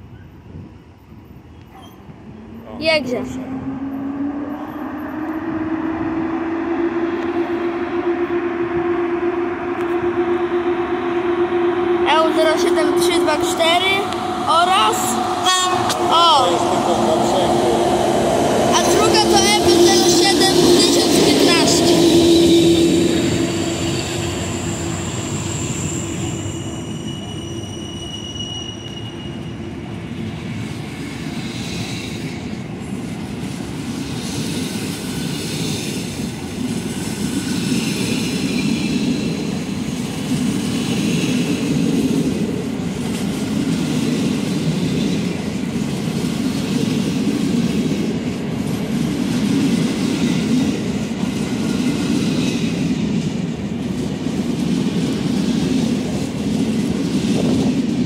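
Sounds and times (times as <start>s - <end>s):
train wheels rumbling on rails: 0.0s - 58.0s
wheel squeals: 23.5s - 30.0s.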